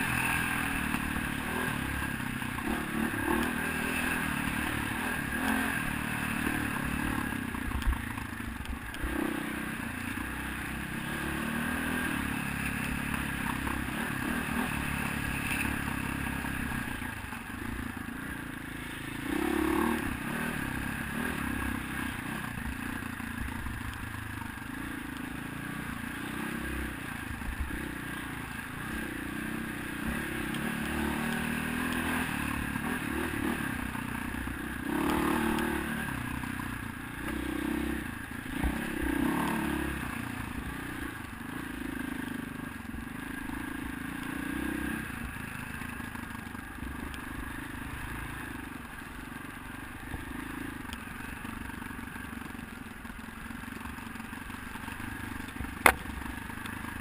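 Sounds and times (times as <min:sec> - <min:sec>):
dirt bike engine revving: 0:00.0 - 0:08.2, 0:09.0 - 0:22.8, 0:24.7 - 0:36.5, 0:37.2 - 0:45.3, 0:55.8 - 0:56.3.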